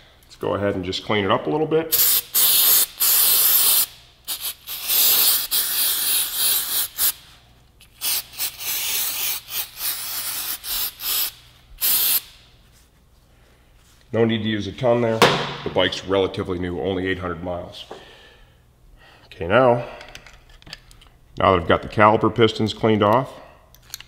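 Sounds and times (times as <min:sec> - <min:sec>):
aerosol spray hissing: 0:01.9 - 0:07.3, 0:08.0 - 0:12.4.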